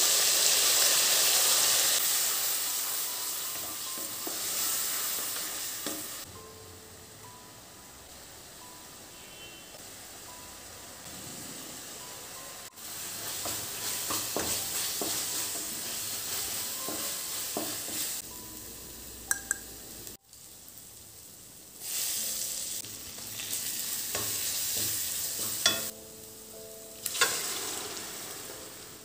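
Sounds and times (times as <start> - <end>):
paste frying and sizzling: 0.0 - 29.0.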